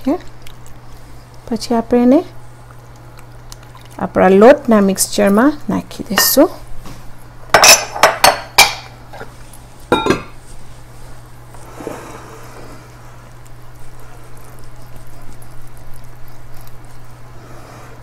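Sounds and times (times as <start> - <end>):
glass bowl clink: 6.1 - 6.4, 7.6 - 8.8, 9.9 - 10.4.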